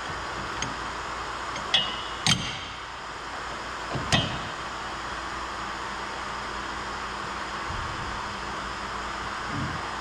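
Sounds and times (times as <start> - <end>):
wrench clinking on steel bolt: 1.5 - 2.6.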